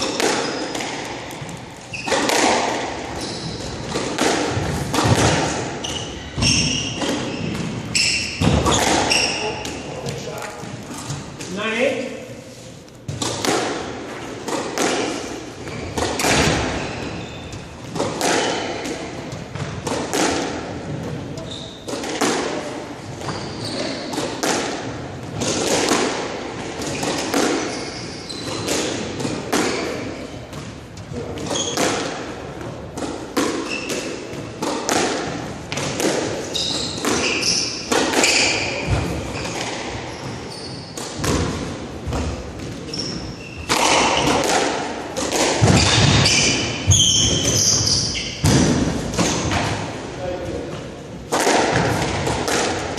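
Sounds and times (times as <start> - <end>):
shoes squeaking on hardwood floor: 0.0 - 4.8, 5.7 - 11.3, 15.6 - 18.8, 21.3 - 22.0, 23.1 - 24.2, 26.9 - 28.9, 29.7 - 32.1, 33.6 - 34.3, 36.4 - 41.4, 42.1 - 44.4, 45.7 - 48.5
squash ball hitting racquets and walls: 0.0 - 12.0, 12.7 - 52.9.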